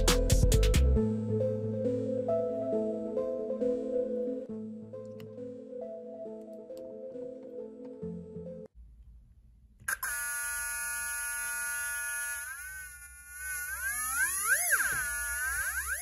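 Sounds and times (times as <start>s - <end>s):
theremin buzzy tone: 9.9s - 16.0s.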